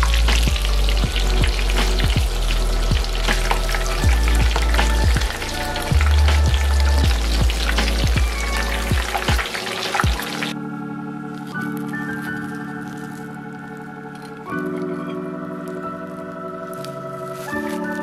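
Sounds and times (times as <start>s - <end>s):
food deep-frying in oil: 0.0s - 10.6s.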